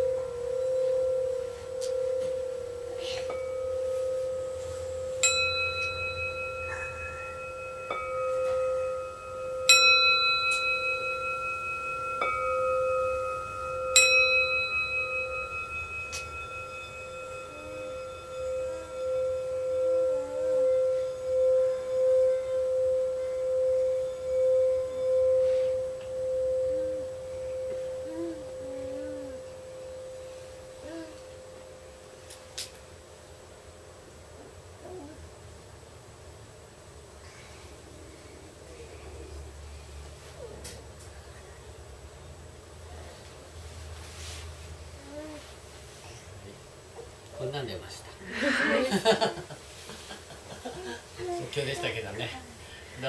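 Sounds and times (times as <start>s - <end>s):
metal bowl struck with mallet: 0.0s - 31.8s
sustained singing bowl tone: 0.0s - 32.6s.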